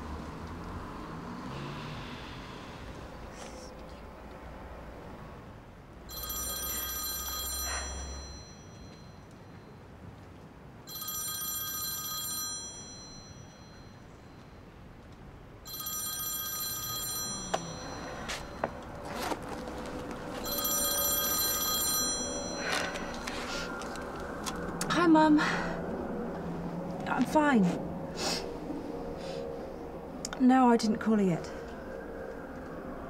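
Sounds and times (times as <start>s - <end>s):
mobile phone ringtone: 6.1s - 9.3s, 10.9s - 14.0s, 15.7s - 19.4s, 20.3s - 23.3s.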